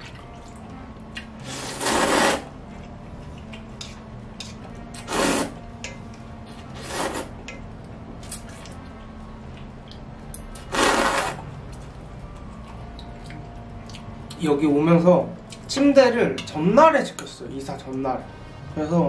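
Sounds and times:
noodles being slurped: 0:01.4 - 0:02.5, 0:05.0 - 0:05.6, 0:06.8 - 0:07.3, 0:10.6 - 0:11.4.

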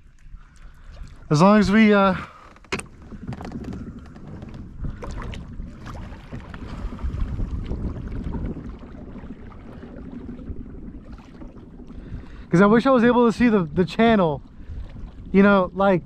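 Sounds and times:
low rumbling wind: 0:00.0 - 0:16.0
water noise around kayak: 0:00.0 - 0:16.0.

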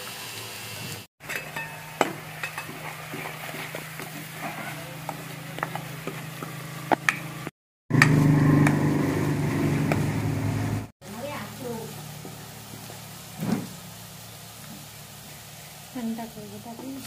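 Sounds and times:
vegetables frying in pan: 0:00.0 - 0:07.4, 0:11.0 - 0:17.0.

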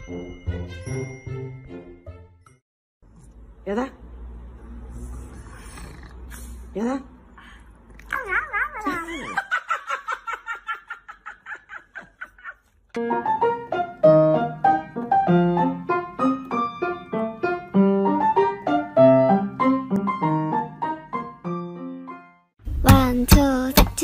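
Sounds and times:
light piano music: 0:13.0 - 0:24.0.

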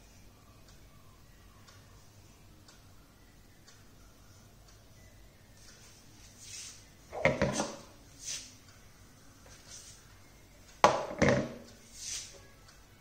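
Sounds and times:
short soft hiss: 0:06.2 - 0:06.9, 0:11.9 - 0:12.4.

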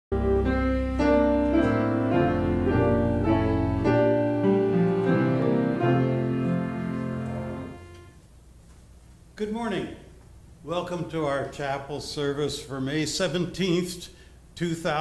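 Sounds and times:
piano playing slow chords: 0:00.1 - 0:08.2.

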